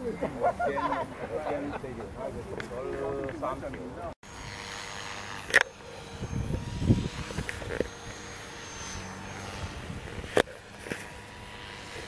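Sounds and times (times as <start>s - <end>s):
distant airplane drone: 0.0s - 12.0s
wind gusts on microphone: 6.0s - 7.9s.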